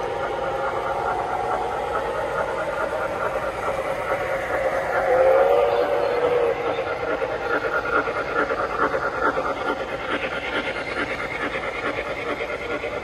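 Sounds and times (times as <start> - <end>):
model train wheels on rail: 0.0 - 13.0.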